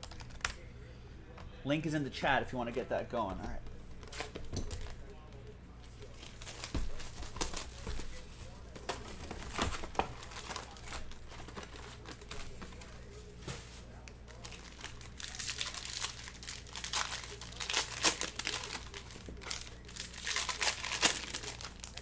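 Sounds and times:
plastic wrappers crinkling: 4.0s - 22.0s
pack being torn open: 14.3s - 22.0s.

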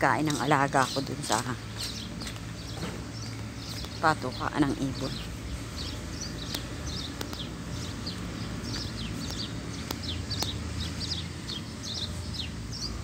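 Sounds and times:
small birds chirping: 0.0s - 13.0s
sharp clicks: 6.4s - 7.5s, 9.2s - 10.6s.

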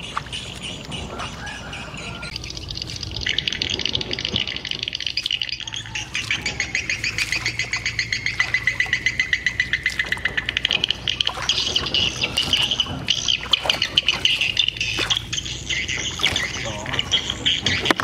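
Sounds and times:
higher chirping: 0.0s - 18.0s.

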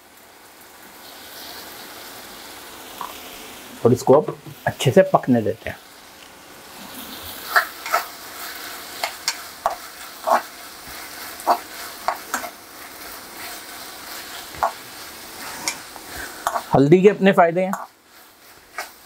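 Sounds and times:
sauce sizzling in a pan: 0.0s - 19.0s
spoon scraping and knocking a pan: 7.4s - 16.7s, 17.7s - 19.0s.

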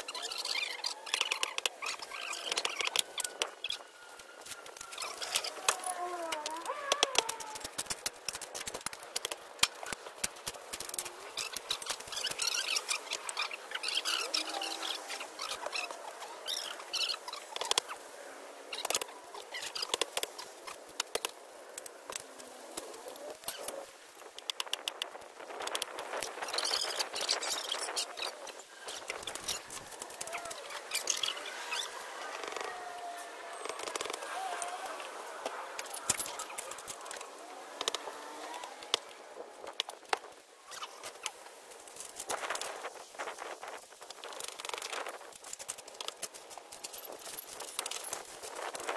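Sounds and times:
concrete blocks clicking and scraping: 35.4s - 38.1s, 44.1s - 48.7s.

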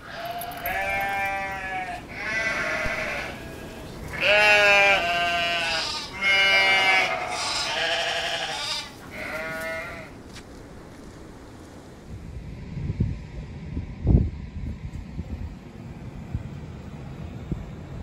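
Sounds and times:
sheep bleating: 0.0s - 10.2s.

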